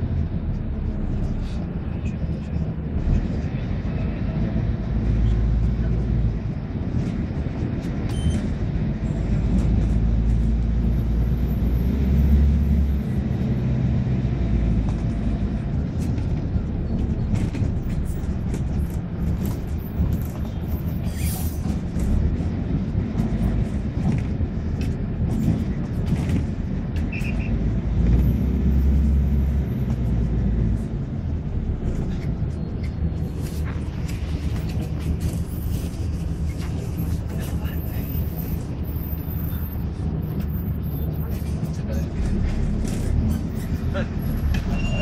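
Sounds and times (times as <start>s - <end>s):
bus engine and road noise: 0.0s - 45.0s.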